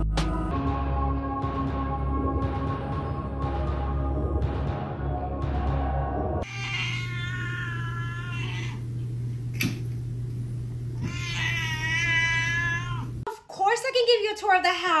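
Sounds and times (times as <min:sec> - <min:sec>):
music: 0:00.0 - 0:06.4
cat meowing: 0:06.4 - 0:08.9, 0:11.0 - 0:13.2
steady low hum: 0:07.0 - 0:13.3.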